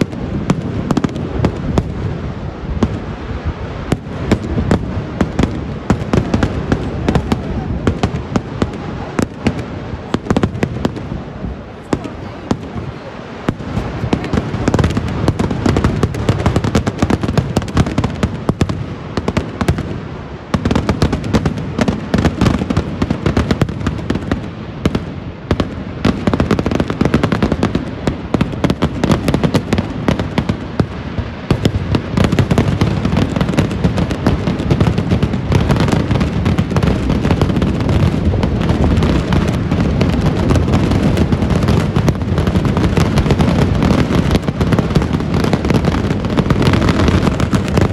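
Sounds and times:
firecrackers banging: 0:00.0 - 0:47.9.

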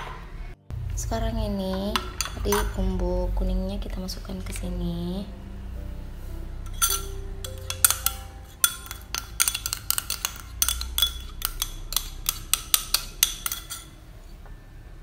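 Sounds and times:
metal spoon clinking on glass bowl: 0:02.0 - 0:02.8, 0:06.7 - 0:14.0.

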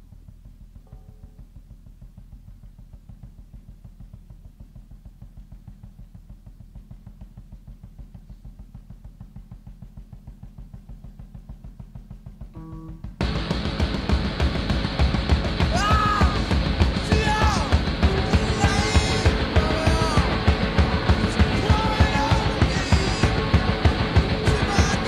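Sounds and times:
garage rock music: 0:10.8 - 0:25.0.

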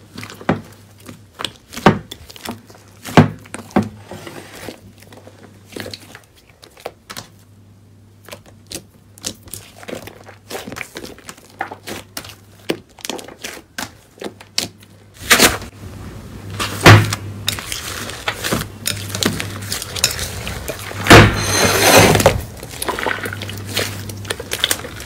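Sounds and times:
slime squishing and squelching: 0:00.0 - 0:15.7, 0:16.5 - 0:25.0
low hum: 0:18.7 - 0:25.0.

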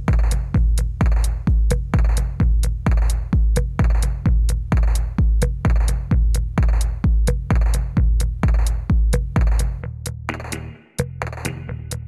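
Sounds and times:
heavy kick drum: 0:00.0 - 0:12.0
electronic dance music: 0:10.3 - 0:11.7.

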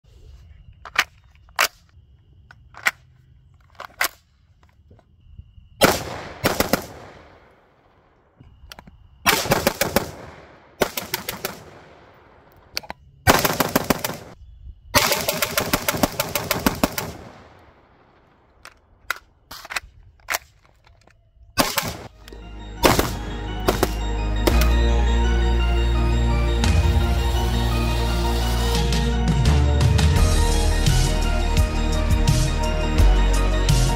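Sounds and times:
gunfire echo: 0:05.8 - 0:07.9, 0:09.3 - 0:12.5, 0:22.8 - 0:24.8
gunshots and automatic bursts: 0:05.8 - 0:08.0, 0:09.3 - 0:14.4, 0:15.0 - 0:19.8, 0:21.6 - 0:22.2
music: 0:22.1 - 0:33.9.

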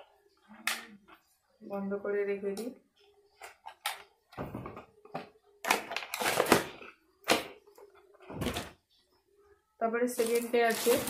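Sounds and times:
packaging rustles: 0:05.7 - 0:07.4, 0:10.2 - 0:11.0.

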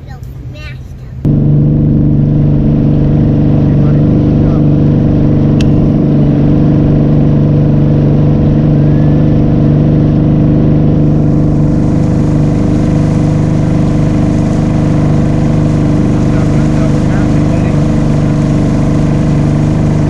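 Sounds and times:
wind: 0:00.0 - 0:04.6
outboard motor droning: 0:01.2 - 0:20.0
water noise: 0:01.3 - 0:20.0.

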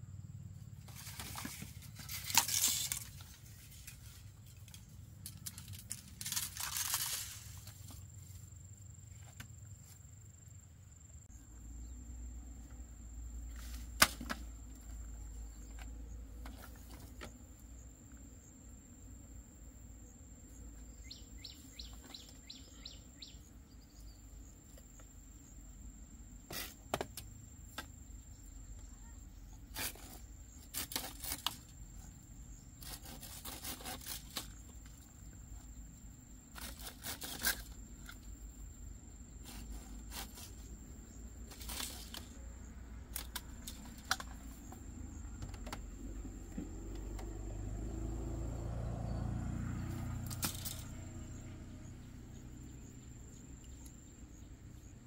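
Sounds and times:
knocks of bamboo poles: 0:13.9 - 0:14.8, 0:45.3 - 0:46.0
bird chirps: 0:20.8 - 0:24.5.

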